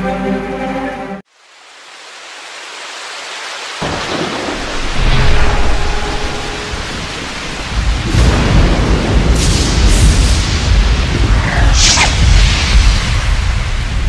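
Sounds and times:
steady rain: 1.3 - 14.0
rolling thunder: 3.8 - 14.0.

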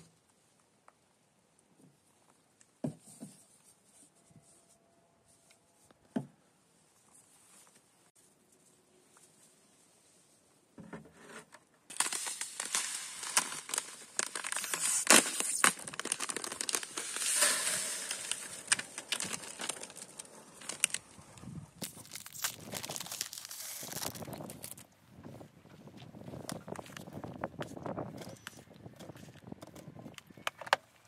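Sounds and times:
plastic packet crinkling and tearing: 11.9 - 21.2, 21.8 - 24.9.

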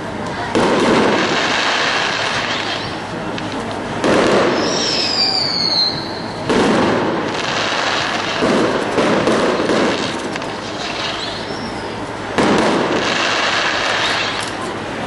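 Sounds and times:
fireworks crackling: 0.0 - 15.0
firework shells bursting: 0.5 - 14.7
whistle falling in pitch: 4.6 - 6.3.

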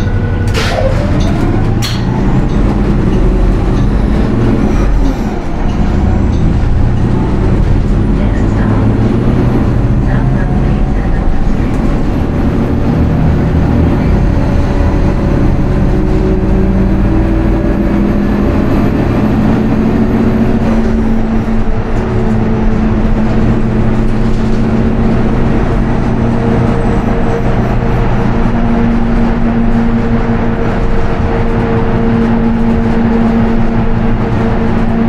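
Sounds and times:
bus engine droning: 0.0 - 35.0
tyre road noise: 0.0 - 35.0.

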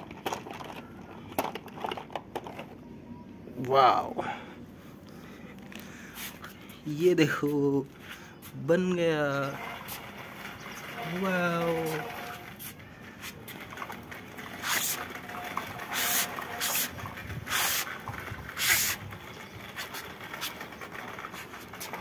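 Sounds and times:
toy truck wheels rolling on concrete: 0.0 - 2.8, 8.8 - 22.0
hissing scrapes: 14.5 - 22.0.

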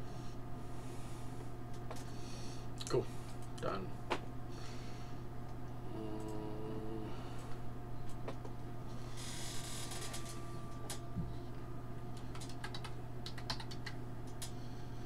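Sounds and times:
low hum: 0.0 - 15.0
keyboard keys clicking: 12.3 - 14.5.

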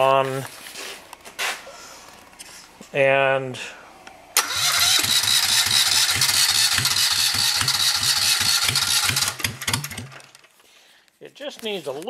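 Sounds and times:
starter motor whine: 4.4 - 10.4
diesel engine cranking: 4.4 - 10.5.

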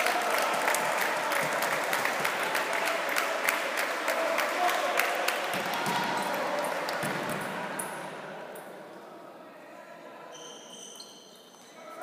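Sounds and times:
scattered applause: 0.0 - 7.8
spectators' voices: 0.0 - 10.2.

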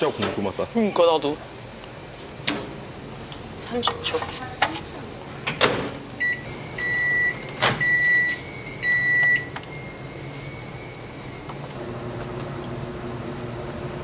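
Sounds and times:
faint high whine: 6.2 - 12.0
microwave beeps: 6.2 - 12.0.

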